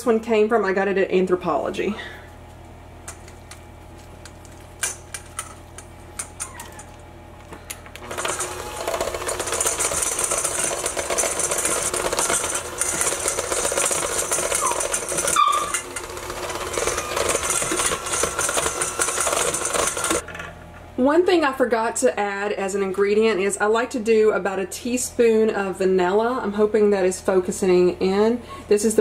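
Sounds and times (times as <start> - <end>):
electric hand mixer running: 7.9 - 20.3.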